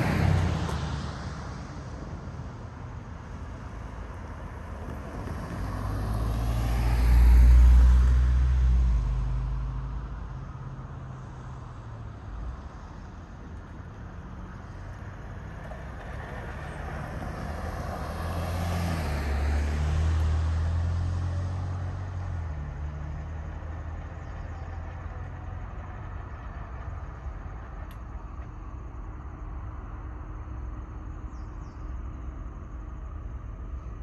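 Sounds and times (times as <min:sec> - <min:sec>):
car driving past: 0:03.6 - 0:12.8, 0:14.2 - 0:29.1.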